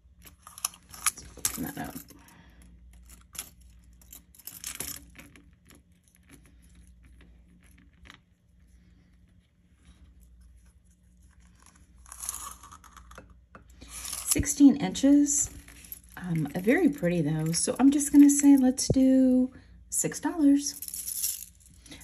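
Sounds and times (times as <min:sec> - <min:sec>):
metal chain clinking: 0:00.3 - 0:06.9, 0:13.8 - 0:18.8, 0:20.6 - 0:22.0.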